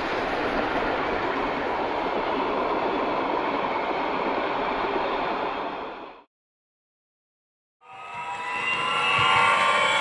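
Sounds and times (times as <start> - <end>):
passenger train rushing past: 0.0 - 6.3.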